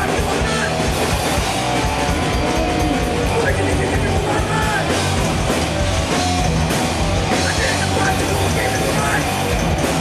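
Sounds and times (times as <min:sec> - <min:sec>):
bass guitar: 0:00.0 - 0:10.0
drum kit: 0:00.0 - 0:10.0
electric guitars: 0:00.0 - 0:10.0.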